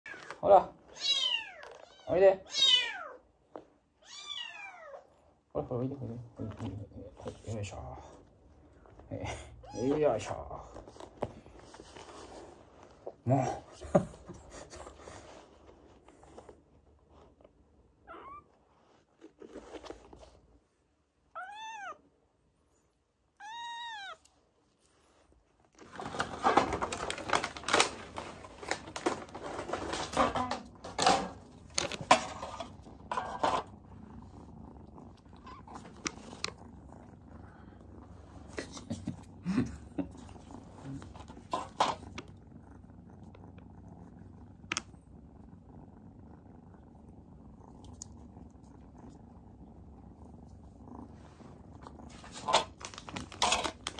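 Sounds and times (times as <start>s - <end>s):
kittens mewing: 21.4s - 22.0s, 23.4s - 24.3s, 34.7s - 36.7s.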